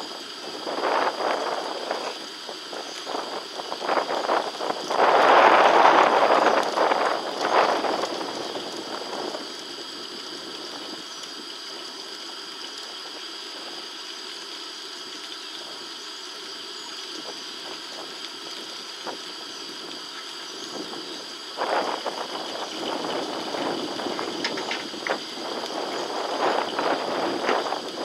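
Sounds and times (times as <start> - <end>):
even hiss: 0.0 - 28.0.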